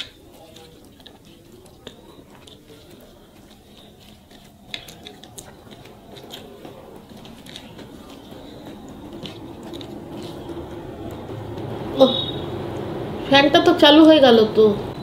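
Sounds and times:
chewing and mouth clicks: 0.0 - 11.2.

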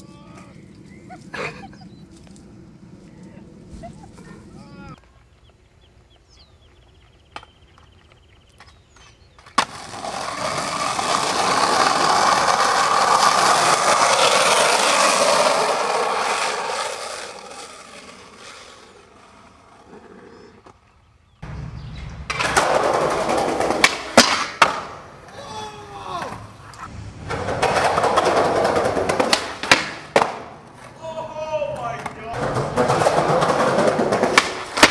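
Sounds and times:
skateboard wheels rolling: 0.0 - 5.4, 6.7 - 34.9
skateboard clacking: 9.4 - 20.2, 22.3 - 25.4, 26.1 - 31.0, 31.6 - 34.9.

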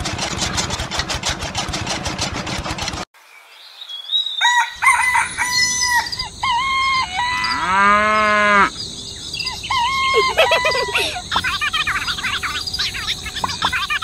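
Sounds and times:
drawn-out animal call: 4.4 - 14.0.

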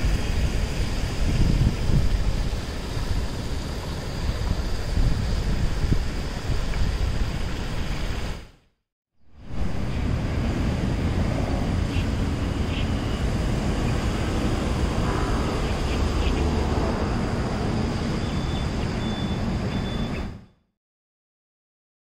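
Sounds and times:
road traffic rumble: 9.3 - 20.5
faint high chirps: 17.9 - 20.6.

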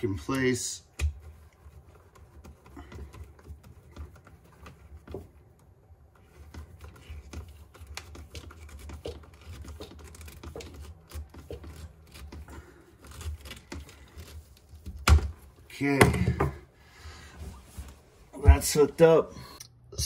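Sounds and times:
screwdriver clicking and scraping: 6.4 - 15.0.

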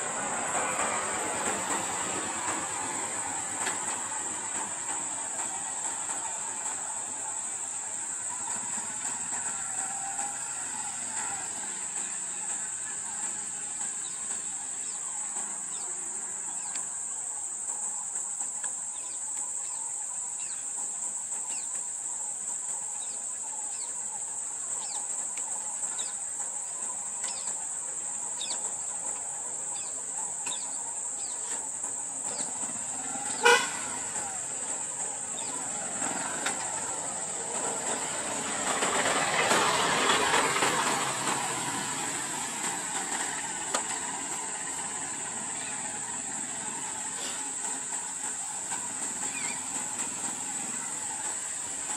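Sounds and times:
vehicle horn toot: 33.3 - 34.2.

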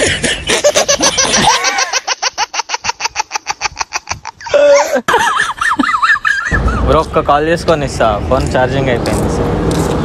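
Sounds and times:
person laughing: 0.0 - 6.9.

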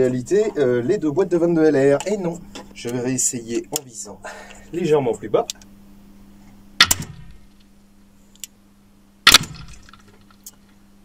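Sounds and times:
rifle shots with echo: 6.8 - 7.5, 9.3 - 9.9.

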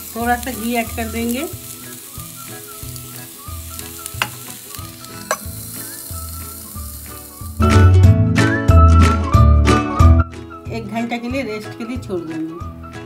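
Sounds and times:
ghee sizzling on hot charcoal: 0.0 - 8.2.

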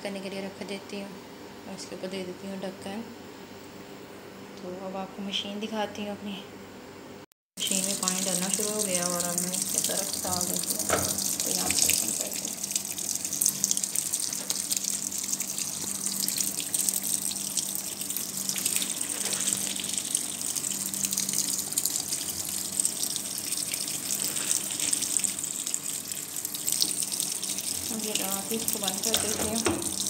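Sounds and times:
water streaming into washing machine: 7.6 - 30.0
water splashing onto laundry: 7.7 - 20.5, 21.3 - 30.0.

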